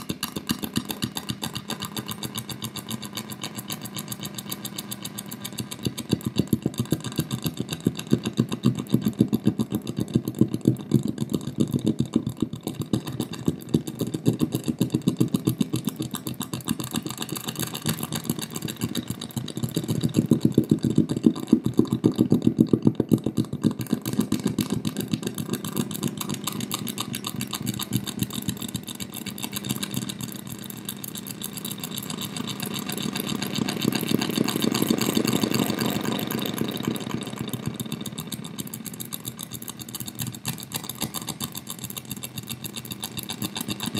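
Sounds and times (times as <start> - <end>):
fast pulsing electronic buzz: 23.6 - 43.9.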